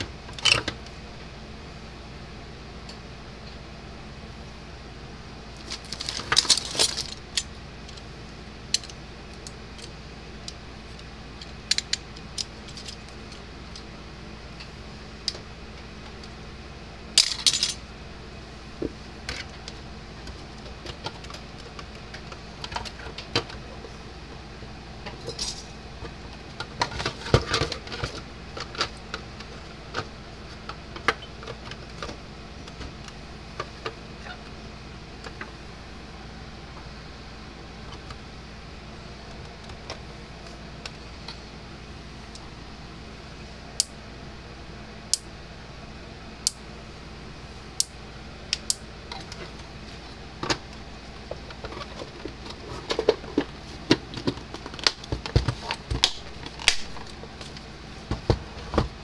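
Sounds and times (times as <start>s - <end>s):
small parts clicking and rattling: 5.6s - 8.1s, 8.7s - 13.9s, 17.2s - 17.8s, 25.2s - 25.7s.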